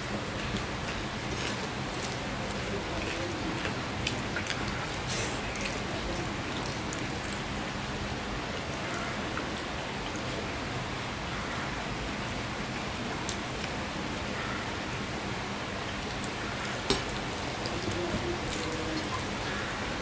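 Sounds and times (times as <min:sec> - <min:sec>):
steady rain: 0:00.0 - 0:20.0
person eating and chewing: 0:00.4 - 0:07.8.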